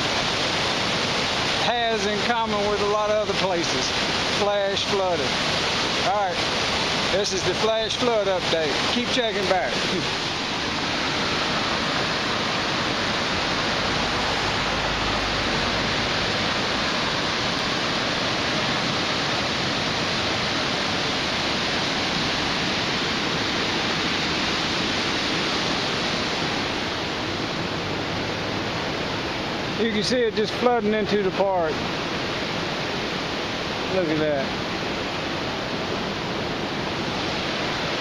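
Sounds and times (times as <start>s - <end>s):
floodwater rushing: 0.0s - 38.0s.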